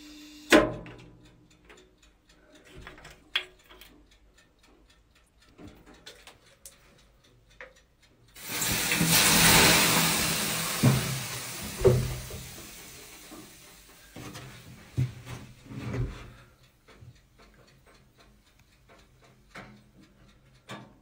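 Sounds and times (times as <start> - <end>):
steam rushing hiss: 8.4 - 14.8.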